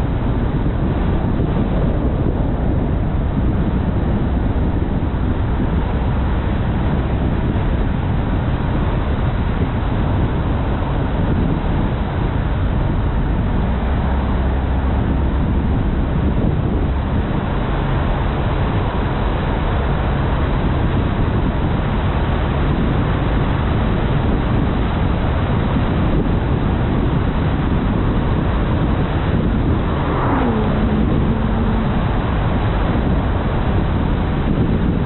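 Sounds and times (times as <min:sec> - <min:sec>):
car road and wind noise: 0:00.0 - 0:35.0
falling tone: 0:29.5 - 0:33.4.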